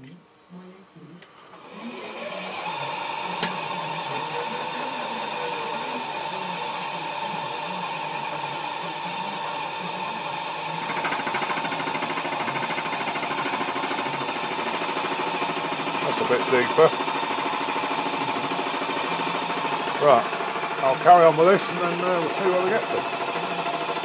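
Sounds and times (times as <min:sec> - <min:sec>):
milling machine spindle running: 0:01.5 - 0:24.0
milling cutter chattering on steel: 0:10.4 - 0:24.0
air line hissing: 0:10.7 - 0:24.0.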